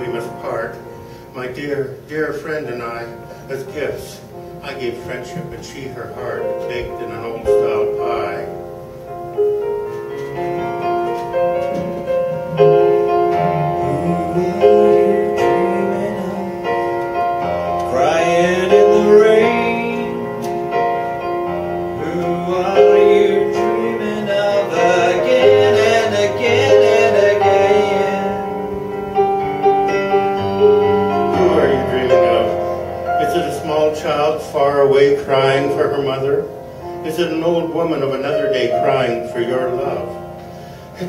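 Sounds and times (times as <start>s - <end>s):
piano playing held chords: 0.0s - 41.0s
man singing wordless lines: 13.3s - 20.8s, 21.4s - 28.7s, 31.2s - 40.3s.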